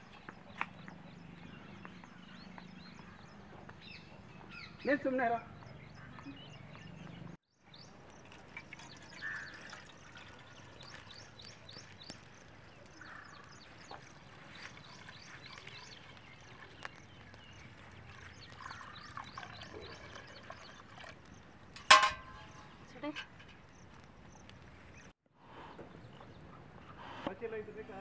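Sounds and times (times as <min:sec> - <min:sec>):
small birds chirping: 0:00.0 - 0:21.7, 0:22.3 - 0:28.0
liquid trickling into metal pot: 0:08.0 - 0:12.2, 0:14.0 - 0:16.9, 0:18.0 - 0:22.6.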